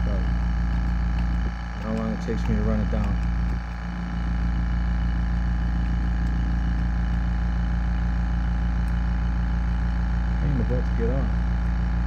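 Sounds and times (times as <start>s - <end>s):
air compressor humming: 0.0s - 12.0s.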